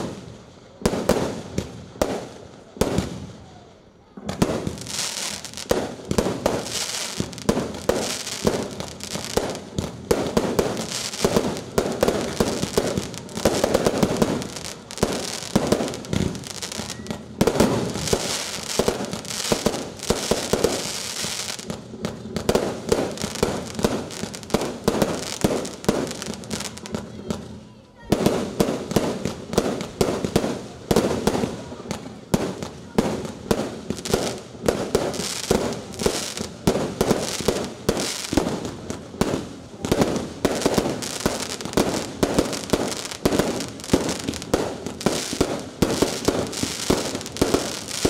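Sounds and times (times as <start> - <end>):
fireworks bangs and crackling: 0.0 - 48.0.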